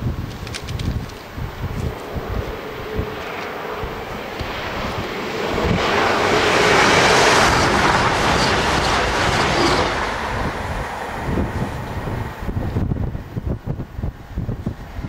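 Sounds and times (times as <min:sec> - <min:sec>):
diesel train passing: 0:01.2 - 0:15.0.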